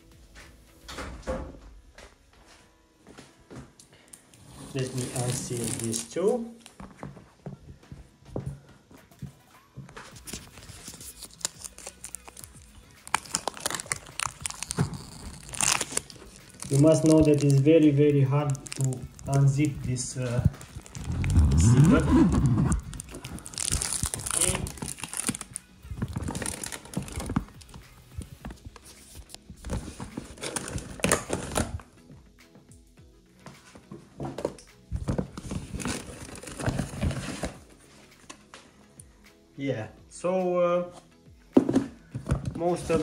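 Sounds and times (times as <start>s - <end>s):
zipper dragged open: 4.4s - 6.0s, 19.8s - 23.8s, 35.5s - 37.6s
stiff zipper pulled open: 4.4s - 6.1s, 13.1s - 17.4s, 18.7s - 25.5s
bag fabric rustling and crinkling: 4.7s - 7.0s, 10.1s - 31.8s, 35.0s - 37.9s.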